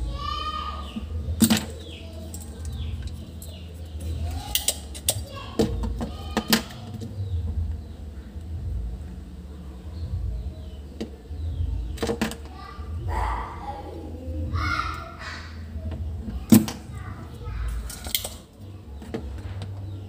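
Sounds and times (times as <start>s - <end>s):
steady low hum: 0.0s - 20.0s
desoldering pump snapping: 1.0s - 7.1s, 17.7s - 19.8s.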